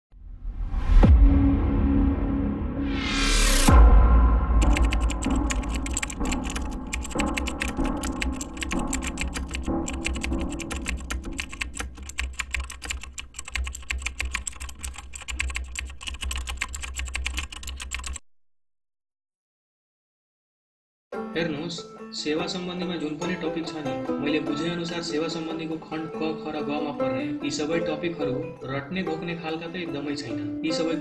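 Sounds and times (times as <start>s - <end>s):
rising whoosh: 0.2s - 4.6s
deep low boom: 0.4s - 4.6s
rapid keyboard typing: 4.6s - 18.2s.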